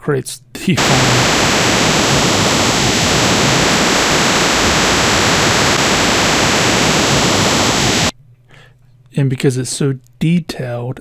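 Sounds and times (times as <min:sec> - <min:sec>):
dense hiss-like noise: 0:00.8 - 0:08.1.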